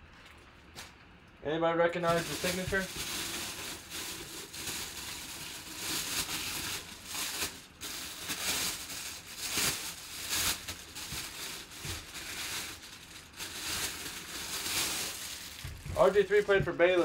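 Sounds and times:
plastic bag crinkling: 2.0 - 17.0.

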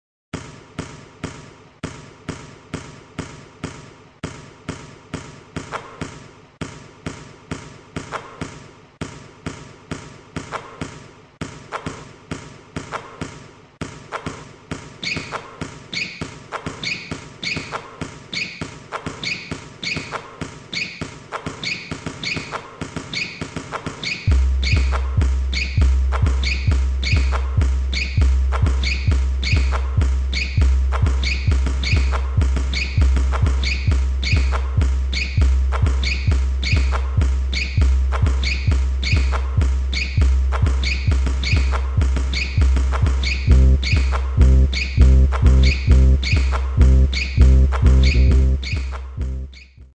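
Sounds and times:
basketballs thudding: 0.4 - 49.4
repeating electronic sound: 24.3 - 49.6.

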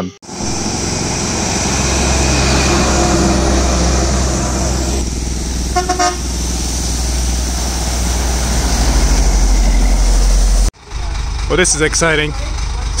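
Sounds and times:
truck engine rumble: 0.2 - 13.0
tyre hiss on wet road: 5.4 - 10.7
vehicle horn toots: 5.7 - 6.3.

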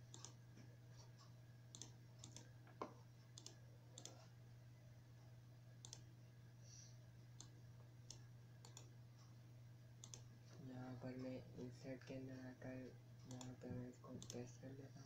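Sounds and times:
computer mouse clicking: 0.0 - 0.4, 1.1 - 4.3, 5.8 - 6.1, 7.4 - 8.9, 10.0 - 10.3, 13.2 - 14.6
low steady hum: 0.0 - 15.0.

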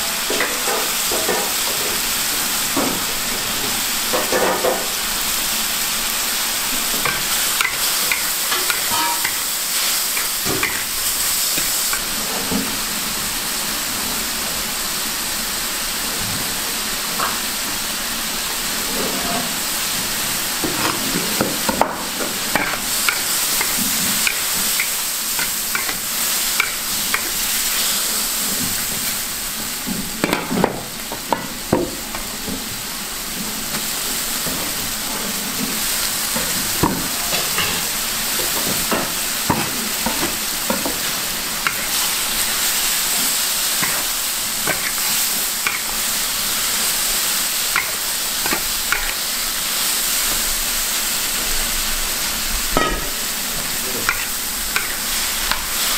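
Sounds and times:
seafood sizzling in a wok: 0.0 - 55.9
metal spatula scraping a wok: 7.0 - 10.9, 22.4 - 26.0, 39.5 - 46.0.

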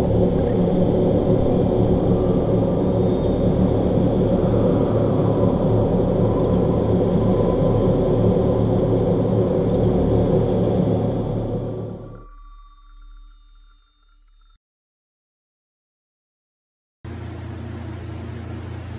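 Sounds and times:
loud low rumbling drone: 0.0 - 13.8.

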